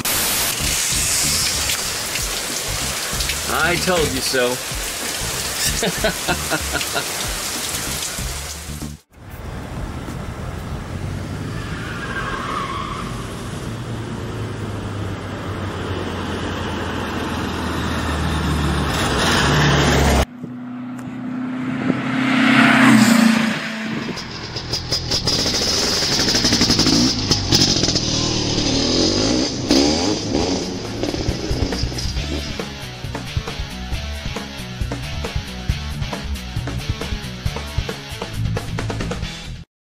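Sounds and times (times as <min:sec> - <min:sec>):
car engine driving by: 0:08.0 - 0:32.9
engine revving: 0:13.1 - 0:39.2.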